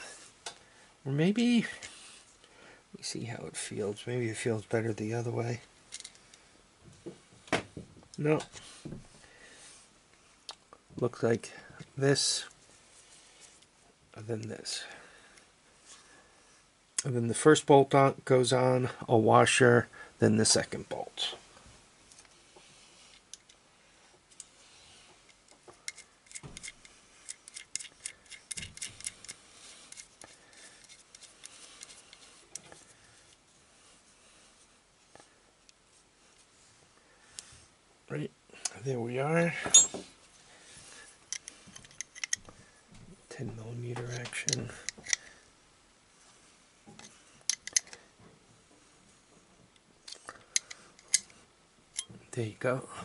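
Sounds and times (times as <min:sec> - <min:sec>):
small metal parts clinking: 0:25.8 - 0:32.2, 0:41.3 - 0:42.4, 0:47.4 - 0:48.0
wrench clicking on metal nut: 0:47.5 - 0:48.0.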